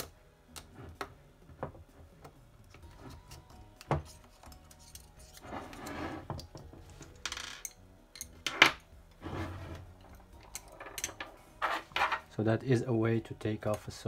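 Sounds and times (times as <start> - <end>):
screwdrivers scraping metal clip: 3.3 - 6.0.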